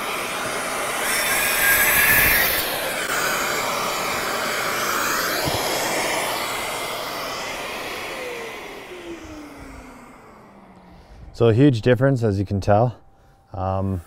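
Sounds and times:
motor spinning down: 0.0 - 11.3
dust extractor running: 0.0 - 11.6.

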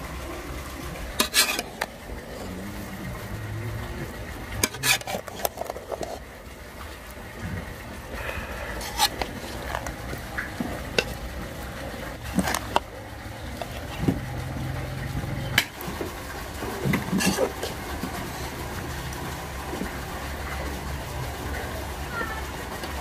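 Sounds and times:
steady low hum: 0.0 - 22.8
utensil clinking against cookware: 4.5 - 6.2.

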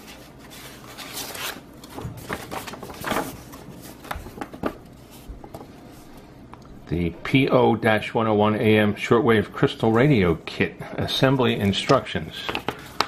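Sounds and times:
paper rustling and sliding: 0.0 - 6.3.

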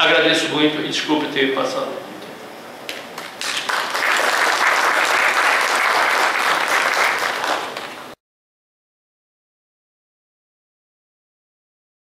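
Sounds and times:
audience applauding: 3.1 - 8.2.

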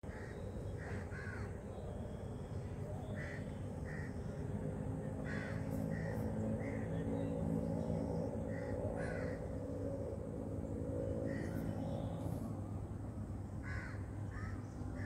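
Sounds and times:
birds calling: 0.0 - 12.6, 13.6 - 15.0
low background rumble: 0.0 - 15.0.

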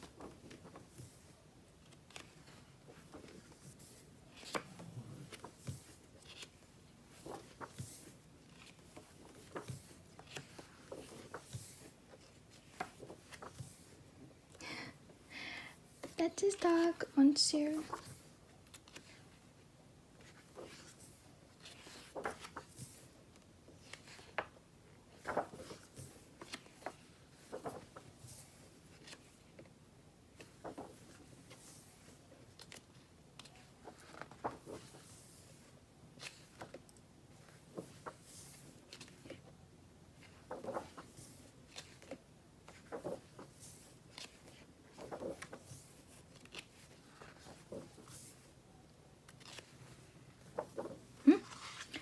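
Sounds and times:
magazine pages turning: 0.0 - 14.0, 16.0 - 19.4, 20.2 - 29.7, 30.4 - 39.5, 40.2 - 48.6, 49.2 - 52.0.

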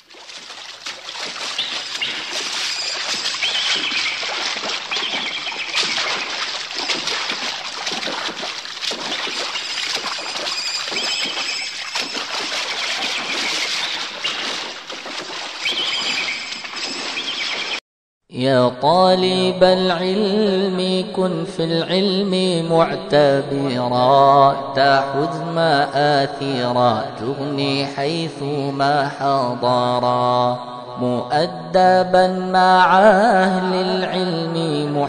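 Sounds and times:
running water splashing: 0.0 - 17.8
birds chirping: 0.4 - 17.8.

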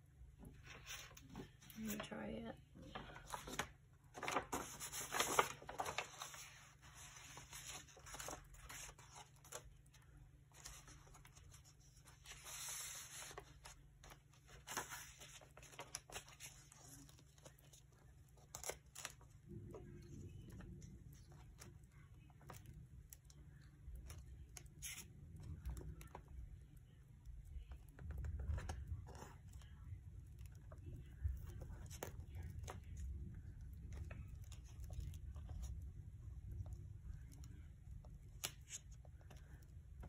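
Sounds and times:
low steady hum: 0.0 - 40.0
paper rustling and ripping: 2.9 - 19.3.

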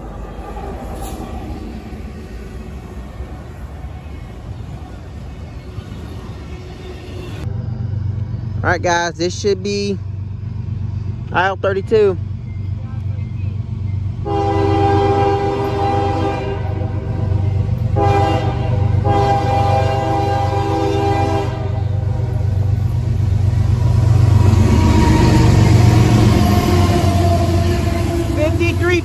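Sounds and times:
heavy locomotive engine rumble: 0.0 - 29.0
steel wheels on rail: 0.0 - 29.0
locomotive air horn blasts: 14.2 - 22.2, 24.4 - 28.9.

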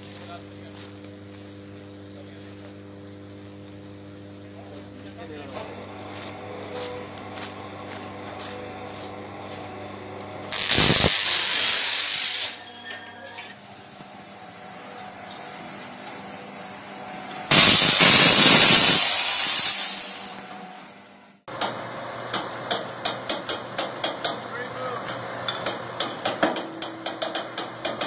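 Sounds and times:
high-voltage arc hissing: 0.0 - 8.8, 9.4 - 12.7, 13.6 - 20.4.

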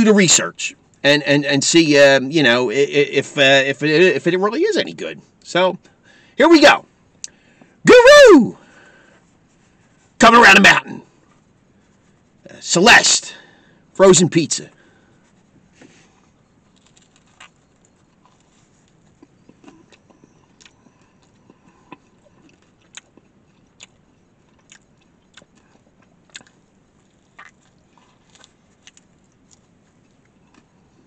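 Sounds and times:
person chewing with mouth clicks: 16.7 - 31.0.

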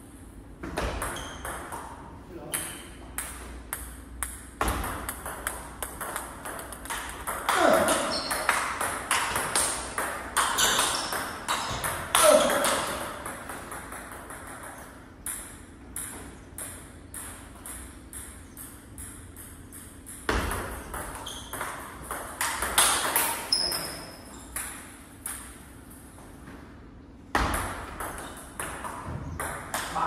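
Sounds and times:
table tennis ball clicking: 2.6 - 7.6.

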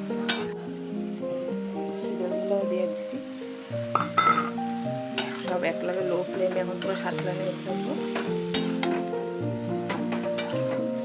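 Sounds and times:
background music: 0.0 - 11.0
vegetables sizzling in a pan: 0.0 - 11.0
metal spatula scraping a pan: 4.0 - 5.7, 8.1 - 9.0, 9.9 - 10.9.

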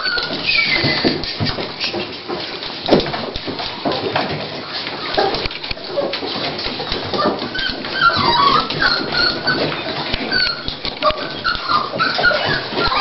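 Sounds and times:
puppies squeaking whimpers: 0.0 - 2.1, 7.1 - 13.0.

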